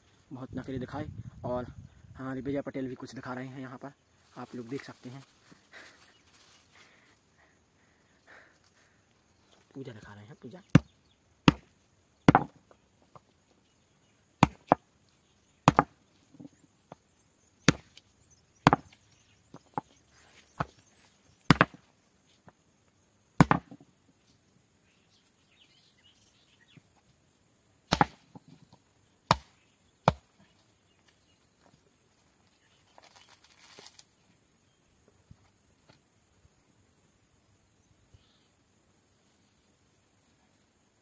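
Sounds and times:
coconut knocking against stone: 10.7s - 11.7s, 12.3s - 13.2s, 14.4s - 14.8s, 15.7s - 16.0s, 18.7s - 18.9s, 21.5s - 21.8s, 23.4s - 23.8s, 27.9s - 28.4s, 29.3s - 29.5s.

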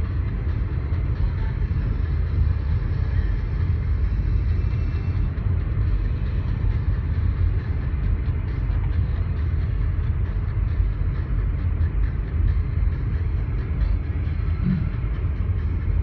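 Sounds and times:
car driving on dirt road: 0.0s - 16.0s.

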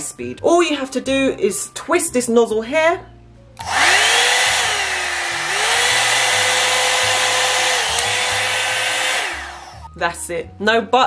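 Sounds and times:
hair dryer brush motor whine: 3.6s - 9.9s.

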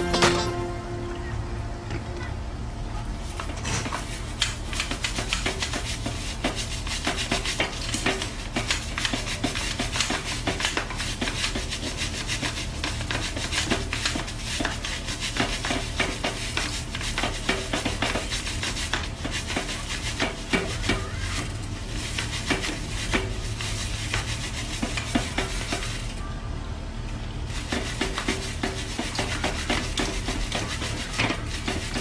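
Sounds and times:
brush scrubbing bike chain: 27.5s - 32.0s.

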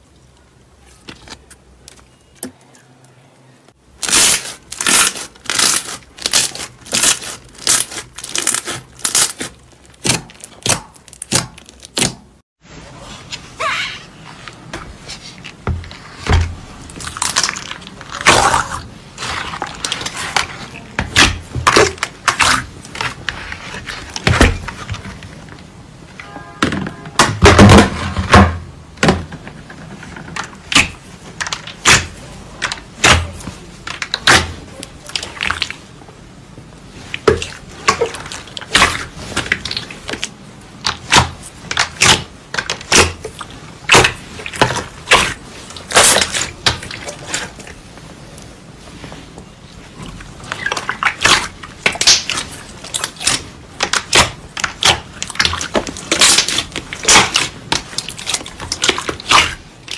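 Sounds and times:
slime squelching and popping: 3.9s - 12.4s, 16.0s - 25.1s, 37.0s - 47.8s, 49.9s - 59.9s.

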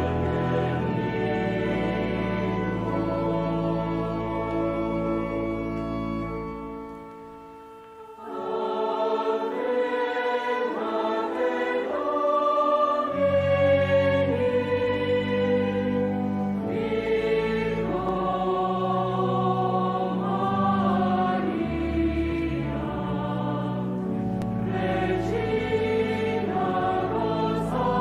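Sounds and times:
choir singing sacred music: 0.0s - 28.0s.

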